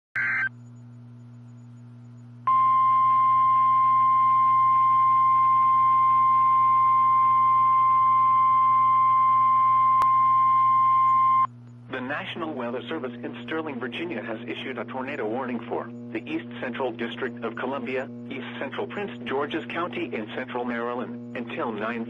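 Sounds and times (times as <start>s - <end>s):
data tones burst: 0.2s - 0.5s, 2.5s - 8.0s
high steady alarm beep: 1.5s - 11.5s
faint radio hum: 11.9s - 22.0s.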